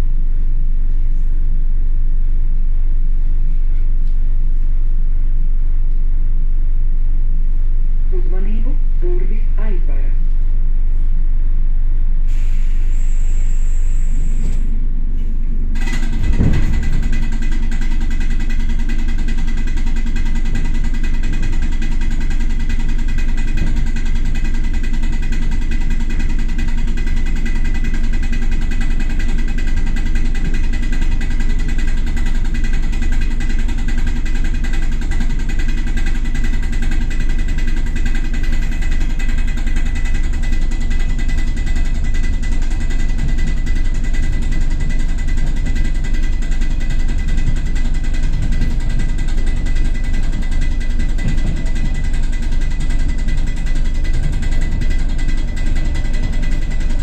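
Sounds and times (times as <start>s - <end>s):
machinery tones: 12.3s - 18.1s
electric train rumbling: 12.3s - 57.0s
short thump: 15.8s - 17.2s.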